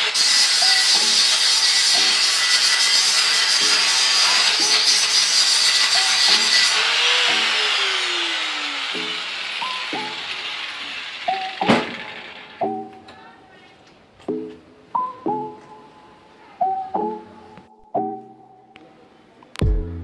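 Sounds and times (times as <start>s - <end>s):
grinder spinning down whine: 0.0s - 13.0s
angle grinder grinding steel: 0.0s - 13.1s.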